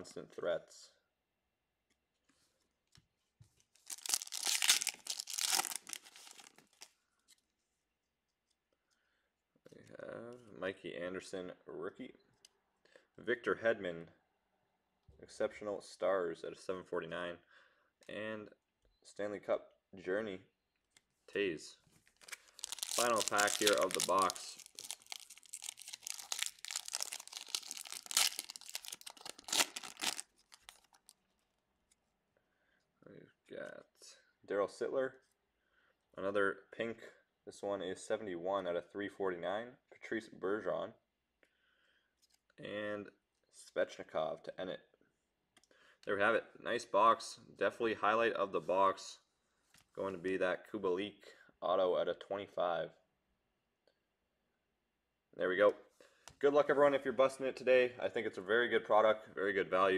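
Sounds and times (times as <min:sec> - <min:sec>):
foil wrapper tearing and crinkling: 0:03.8 - 0:06.9, 0:22.2 - 0:31.1.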